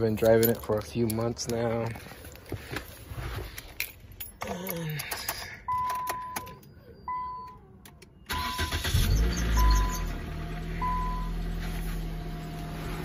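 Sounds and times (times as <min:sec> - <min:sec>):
keys rattling and clicking: 0:00.0 - 0:06.8.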